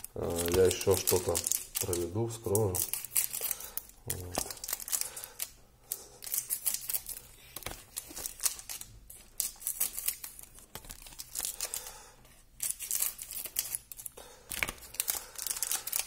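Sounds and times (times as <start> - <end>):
wrappers torn open and crinkled: 0.0 - 11.8, 12.5 - 16.0.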